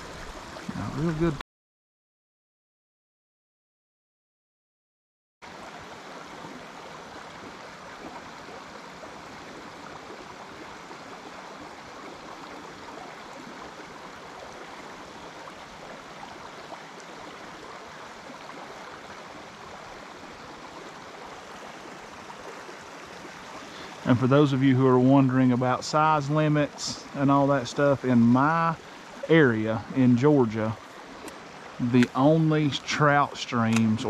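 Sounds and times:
creek water rushing: 0:00.0 - 0:01.4, 0:05.4 - 0:34.0.

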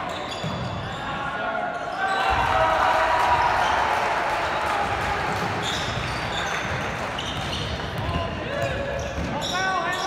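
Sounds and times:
basketball bouncing on court: 0:04.9 - 0:09.4.

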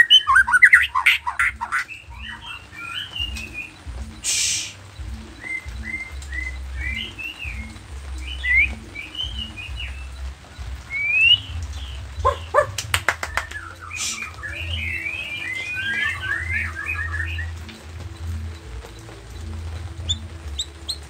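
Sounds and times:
bird singing: 0:00.0 - 0:21.0.

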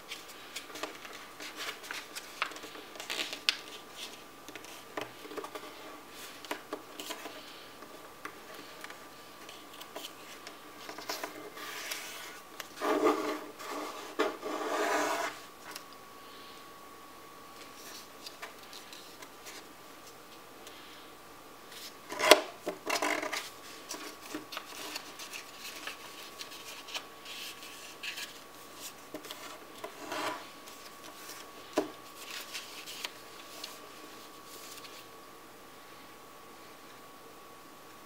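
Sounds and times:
paper being folded and creased: 0:00.0 - 0:07.6, 0:08.6 - 0:15.8, 0:21.7 - 0:35.1
faint steady hum: 0:00.0 - 0:38.0.

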